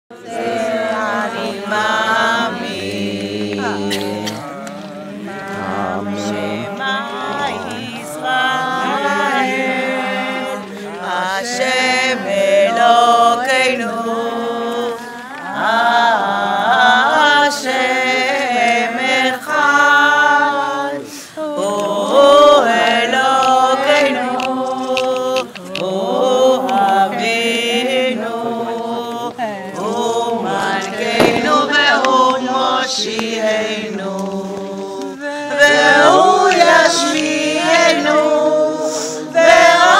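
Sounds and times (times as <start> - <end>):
person chanting unaccompanied: 0.1 - 39.9.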